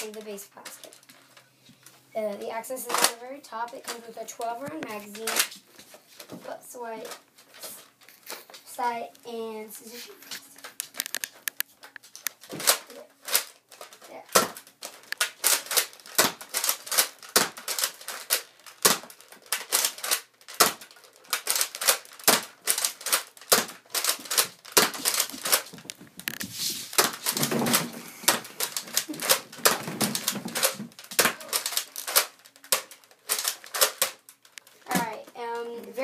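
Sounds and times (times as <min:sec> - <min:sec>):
plastic toy clicks and clacks: 0:02.9 - 0:05.5, 0:10.6 - 0:36.0
rustling: 0:09.7 - 0:36.0.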